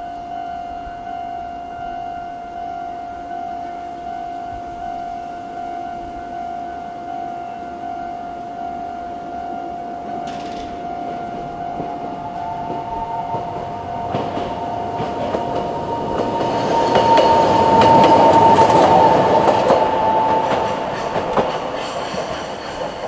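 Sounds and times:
crossing alarm bell ringing: 0.0 - 23.0
tram wheels clicking over rail joints: 10.1 - 23.0.

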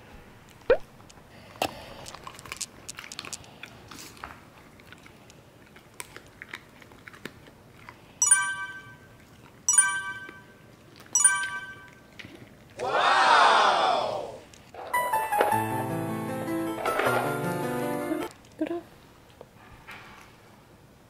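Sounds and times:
dog chewing treat: 2.1 - 8.2
electronic chimes: 8.2 - 9.1, 9.7 - 10.6, 11.2 - 12.1.

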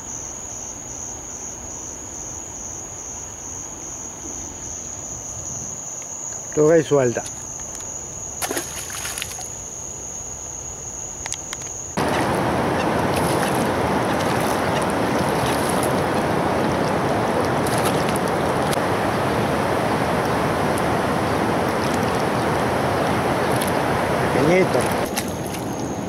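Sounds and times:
fish splashing at water surface: 8.4 - 9.6, 12.0 - 25.8
loud steady rushing noise: 12.0 - 26.0.

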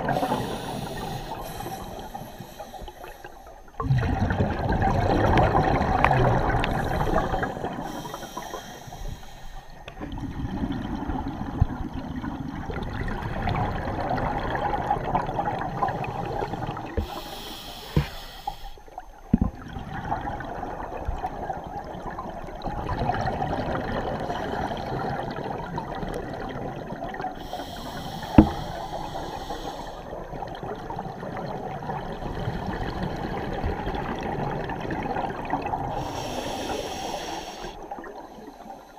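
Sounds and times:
exhaled bubbles gurgling underwater: 0.0 - 38.9
scuba regulator hiss: 0.1 - 3.5, 6.8 - 9.8, 17.0 - 18.8, 27.4 - 30.0, 36.0 - 37.8.

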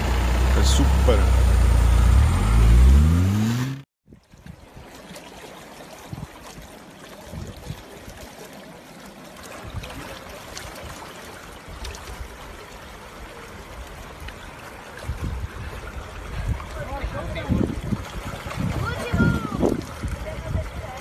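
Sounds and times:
low rumbles: 0.0 - 3.8
water trickling over rocks: 4.1 - 21.0.

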